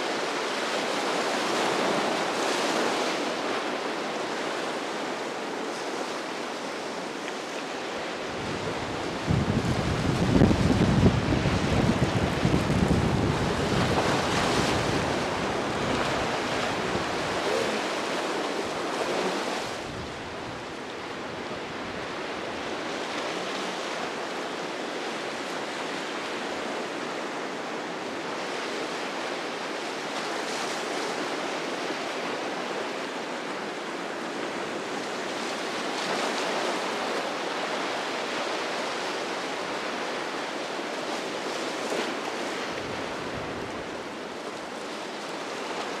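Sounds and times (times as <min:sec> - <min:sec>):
ocean surf washing: 0:00.0 - 0:46.0
wind buffeting microphone: 0:08.2 - 0:24.3.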